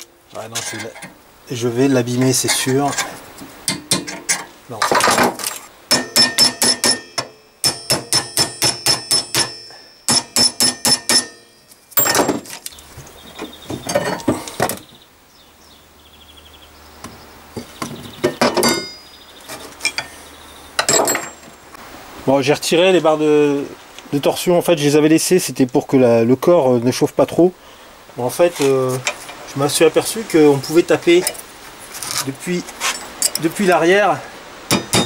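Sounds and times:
hammer striking steel: 0:05.9 - 0:12.4, 0:34.7 - 0:35.0.

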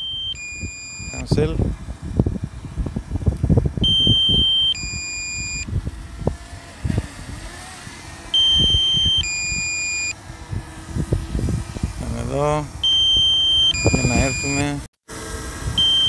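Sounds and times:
two-tone electronic beep: 0:00.0 - 0:01.3, 0:03.8 - 0:05.7, 0:08.4 - 0:10.2, 0:12.8 - 0:14.6, 0:15.8 - 0:16.0.

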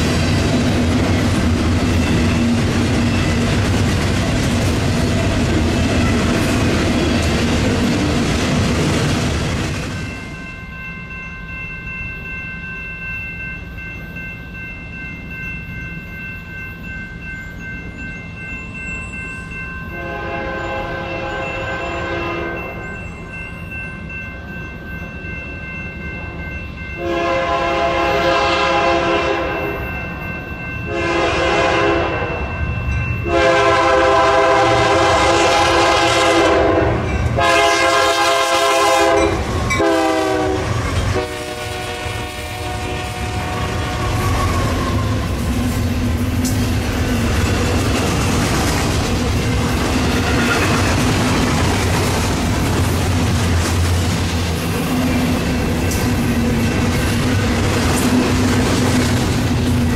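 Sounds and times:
locomotive air horn blasts: 0:19.9 - 0:22.7, 0:27.0 - 0:29.7, 0:30.9 - 0:32.4, 0:33.2 - 0:44.6.

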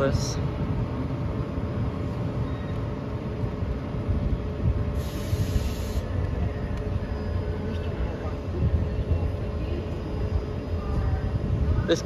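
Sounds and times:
electric locomotive humming: 0:00.0 - 0:12.0
compressed air hiss: 0:05.0 - 0:06.2.

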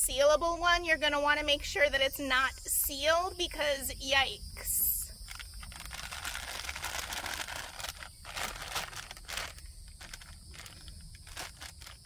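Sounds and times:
plastic bag crinkling and rustling: 0:05.3 - 0:12.0.

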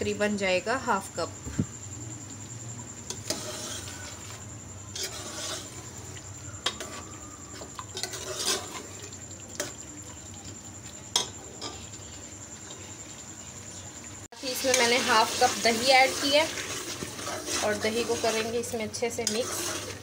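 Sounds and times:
light frying sizzle: 0:00.0 - 0:20.0
metal spoon scraping pot: 0:03.1 - 0:09.8, 0:14.4 - 0:20.0.

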